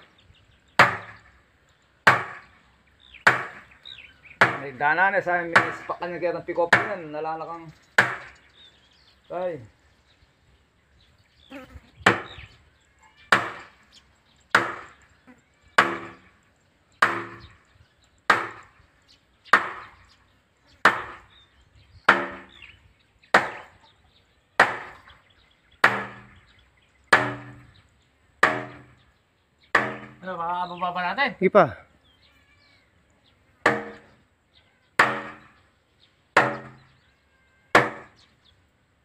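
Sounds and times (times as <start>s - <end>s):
sledgehammer striking wooden block: 0.8s - 1.3s, 2.0s - 2.6s, 3.2s - 3.7s, 4.4s - 4.8s, 5.5s - 5.9s, 8.0s - 8.4s, 12.0s - 12.4s, 13.3s - 13.8s, 14.6s - 15.0s, 15.8s - 16.3s, 17.0s - 17.6s, 18.3s - 18.8s, 19.5s - 20.0s, 20.8s - 21.3s, 22.0s - 22.5s, 23.3s - 23.7s, 24.6s - 25.1s, 25.8s - 26.4s, 27.1s - 27.8s, 28.4s - 29.0s, 29.7s - 30.2s, 33.6s - 34.2s, 35.0s - 35.6s, 36.4s - 37.0s, 37.7s - 38.2s.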